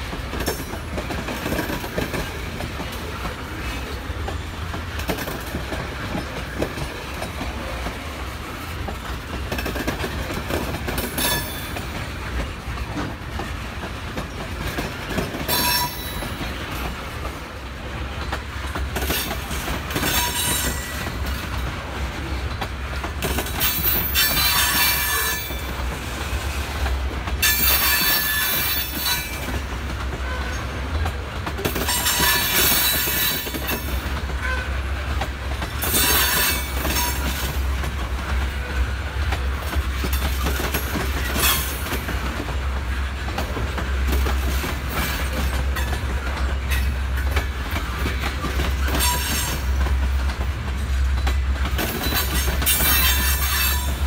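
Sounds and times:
railroad cars rumbling: 0.0s - 54.0s
steel wheels squealing on rail: 9.5s - 13.5s, 14.2s - 17.1s, 19.0s - 21.5s, 22.2s - 34.8s, 35.6s - 37.7s, 39.7s - 42.2s, 43.8s - 49.8s, 51.2s - 54.0s.

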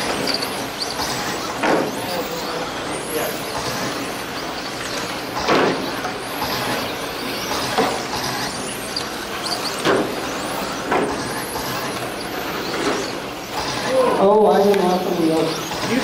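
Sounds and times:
rc car motors whining: 0.0s - 16.0s
cars hitting boards: 1.0s - 2.0s, 5.3s - 6.9s, 9.8s - 13.1s.

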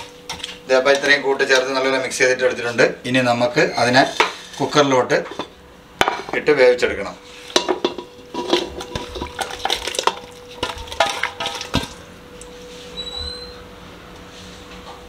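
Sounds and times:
spoon clinking against metal pots: 7.5s - 12.0s.

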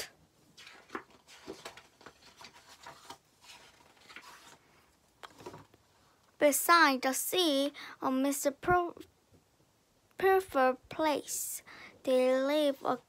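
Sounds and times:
book pages rustling: 0.4s - 5.8s.

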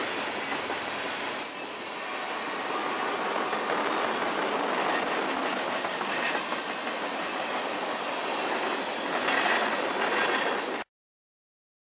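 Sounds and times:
freight train rolling past: 0.0s - 10.9s
train wheels clicking over rail joints: 3.1s - 7.8s.

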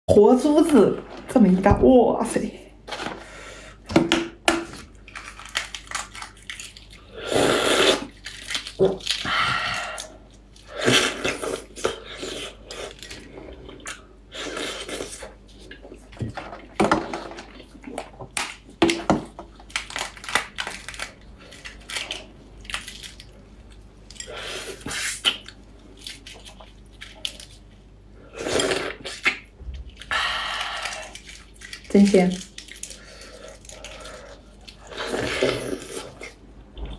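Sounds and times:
wet squishing: 4.8s - 16.8s, 19.6s - 27.9s, 28.8s - 36.9s
chewing: 28.6s - 36.9s.

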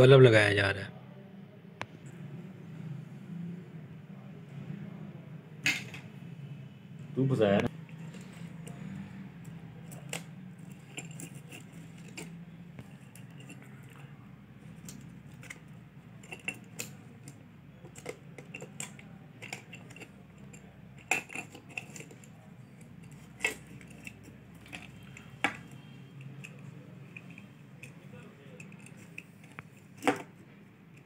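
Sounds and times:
small metal parts clicking: 7.9s - 31.0s.

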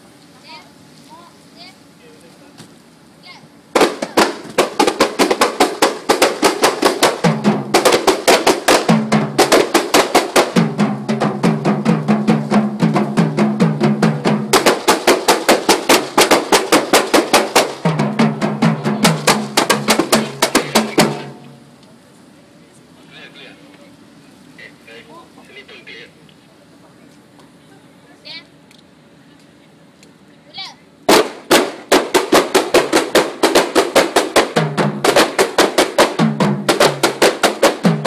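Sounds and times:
hand frame drums beaten fast: 3.7s - 21.5s, 31.1s - 38.0s.

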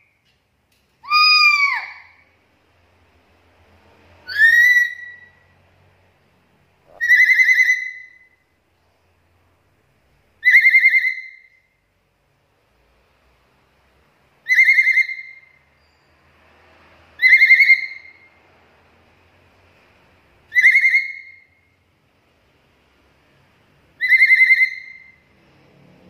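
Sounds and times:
parrot whistled calls: 1.0s - 2.2s, 4.2s - 5.4s, 6.9s - 8.4s, 10.4s - 11.7s, 14.4s - 16.1s, 17.2s - 18.3s, 20.5s - 21.6s, 24.0s - 25.3s.

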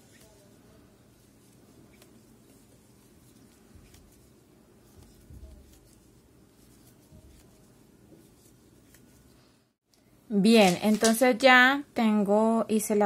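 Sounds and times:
yarn rustling: 0.0s - 9.5s.

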